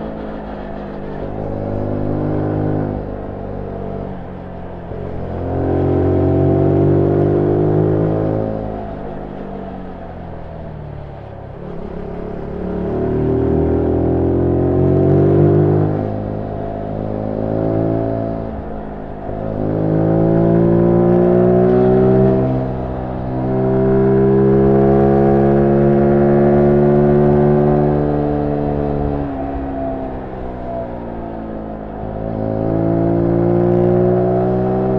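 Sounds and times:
motorcycle engine revving: 11.0s - 34.9s.

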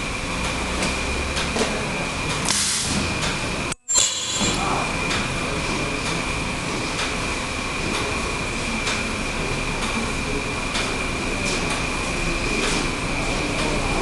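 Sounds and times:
mechanical noise: 0.0s - 14.0s
ultrasonic machine high whine: 3.4s - 14.0s
high-pitched sealing burst: 3.8s - 4.9s.

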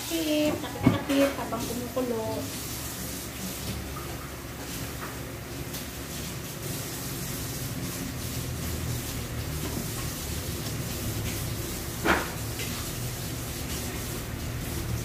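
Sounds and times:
pan boiling hum and hiss: 0.0s - 15.0s.

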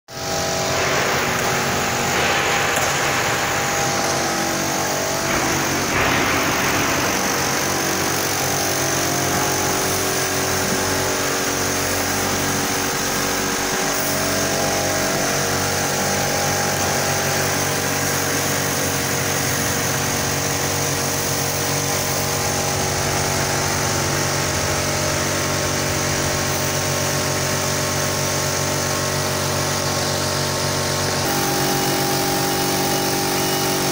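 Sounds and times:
production line machinery humming: 0.1s - 33.9s.

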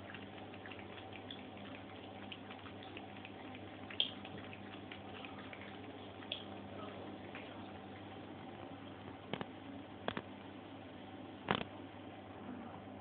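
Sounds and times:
cat lapping water: 0.0s - 9.5s.

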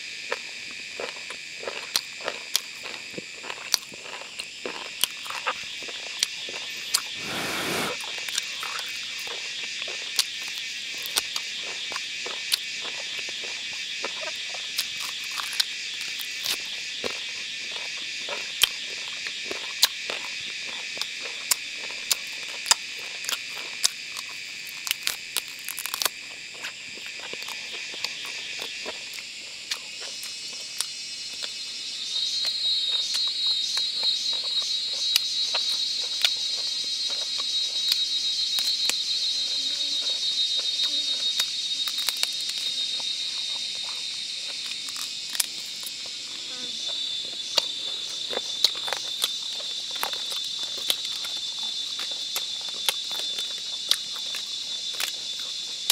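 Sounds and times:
insect chorus: 0.0s - 55.9s
rapidly pulsing insect call: 0.0s - 55.9s
brief rustle: 7.2s - 8.0s.

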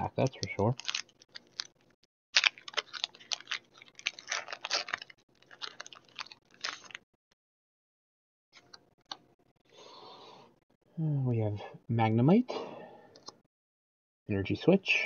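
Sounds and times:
foil wrapper crinkling torn open: 0.2s - 7.0s.

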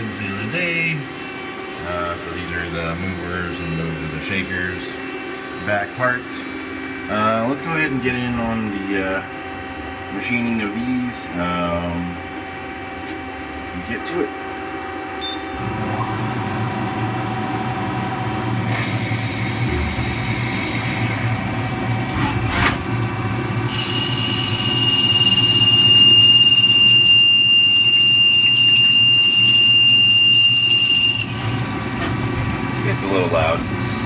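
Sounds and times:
high whine of lathe cutting: 0.0s - 22.1s, 23.2s - 34.0s
two-note high whine: 0.0s - 22.3s, 23.2s - 32.2s
machine hum: 0.0s - 34.0s.

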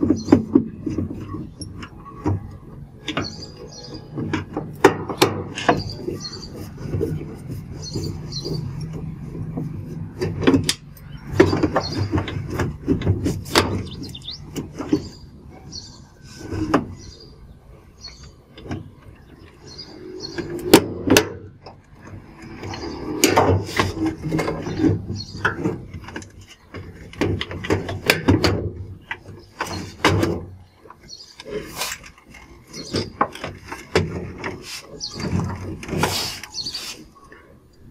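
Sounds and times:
plastic panel clicking and squeaking: 0.0s - 37.9s.

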